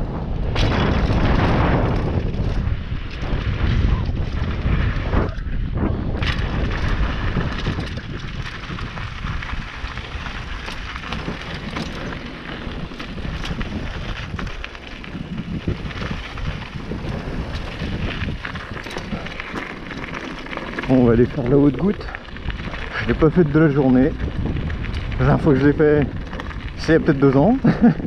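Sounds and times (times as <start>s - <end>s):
bike clicks and rattles: 0.0s - 28.0s
wind on microphone: 0.0s - 28.0s
tyres crunching over stones: 6.1s - 28.0s.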